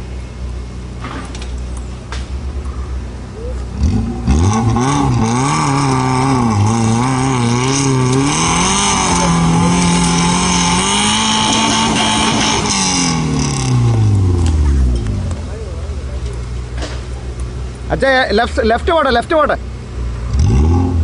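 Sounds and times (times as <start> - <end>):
jeep engine revving hard: 3.7 - 14.7, 20.2 - 21.0.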